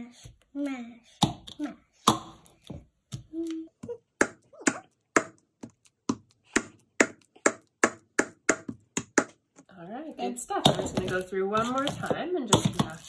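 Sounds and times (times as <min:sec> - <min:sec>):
masher knocking plastic bowl: 0:10.5 - 0:13.0.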